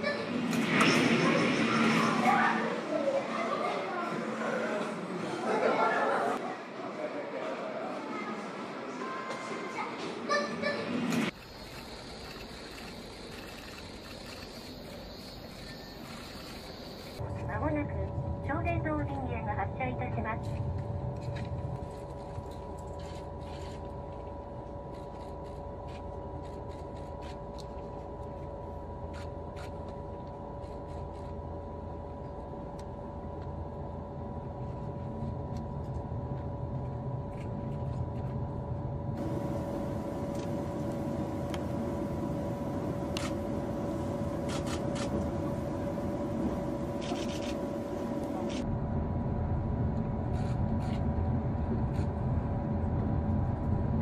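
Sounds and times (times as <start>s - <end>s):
train cabin electrical hum: 7.8s - 54.0s
train rumble: 32.4s - 54.0s.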